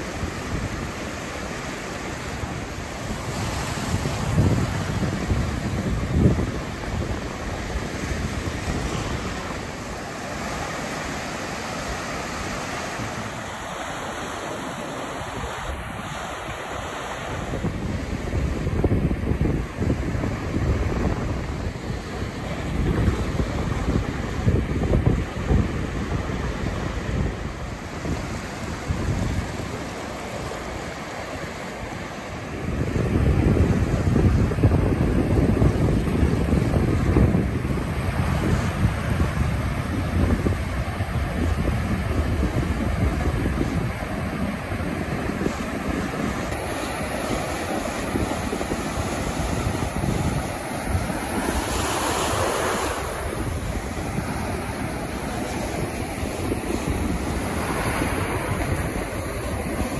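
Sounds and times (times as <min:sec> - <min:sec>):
ocean surf breaking: 0:00.0 - 0:59.9
wind on microphone: 0:00.0 - 0:59.9.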